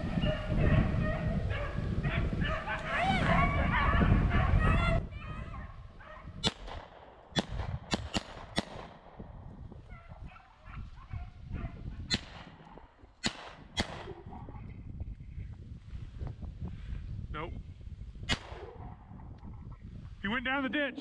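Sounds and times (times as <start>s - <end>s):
distant dogs baying: 0.0s - 7.3s, 9.8s - 14.8s, 18.4s - 19.6s
wind rumble on microphone: 0.0s - 21.0s.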